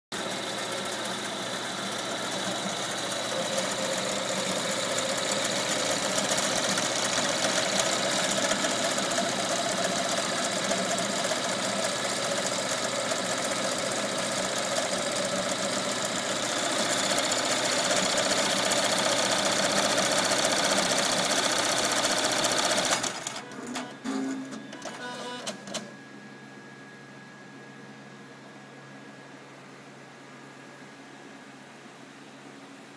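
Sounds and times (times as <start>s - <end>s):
embroidery machine stitching: 0.2s - 25.6s.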